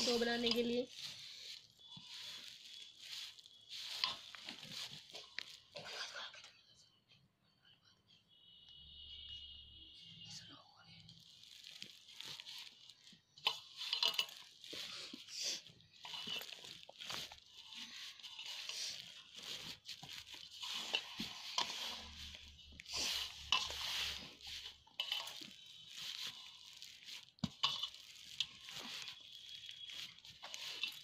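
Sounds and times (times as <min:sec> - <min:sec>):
hands kneading crumbly dough: 0:00.0 - 0:06.0, 0:11.1 - 0:31.0.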